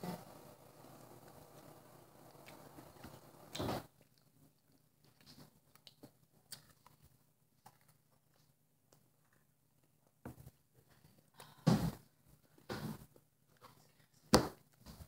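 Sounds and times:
chewing and mouth sounds: 0:00.9 - 0:10.0.

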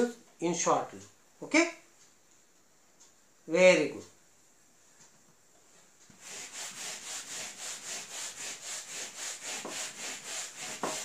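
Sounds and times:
eraser rubbing on whiteboard: 0:06.1 - 0:11.0.

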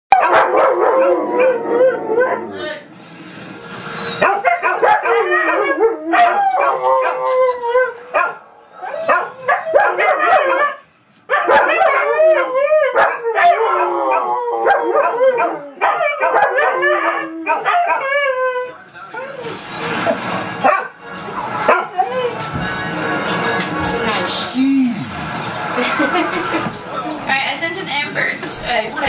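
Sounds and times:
dogs howling: 0:00.1 - 0:02.7, 0:03.9 - 0:22.6.

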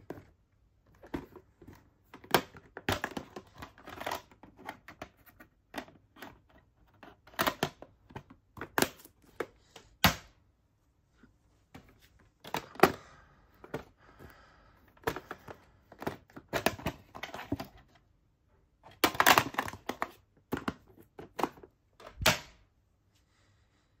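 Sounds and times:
plastic cassette cases clacking: 0:00.9 - 0:10.3, 0:12.4 - 0:14.3, 0:14.9 - 0:18.0, 0:18.8 - 0:22.6.

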